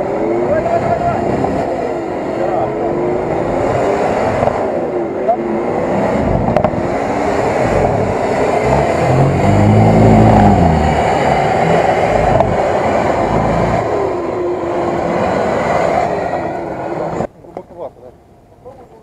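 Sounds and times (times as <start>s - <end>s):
engine working hard: 0.0s - 17.3s
tyres churning mud: 5.7s - 16.2s.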